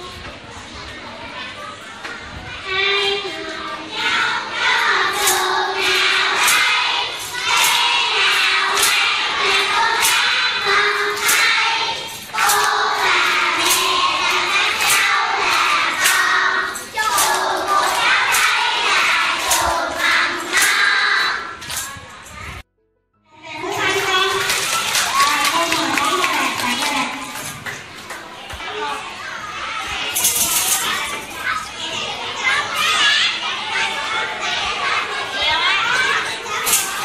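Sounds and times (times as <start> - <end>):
children singing: 2.7 - 21.9
children clapping in time: 5.1 - 21.9, 23.8 - 28.7.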